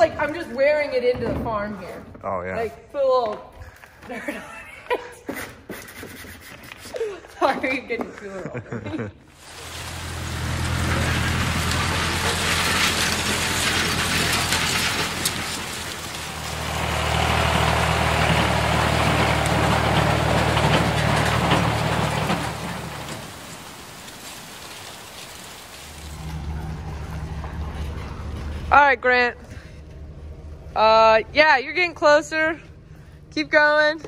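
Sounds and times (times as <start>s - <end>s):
farm machinery engine rattling: 9.3s - 29.0s
pickup truck engine idling: 9.4s - 28.8s.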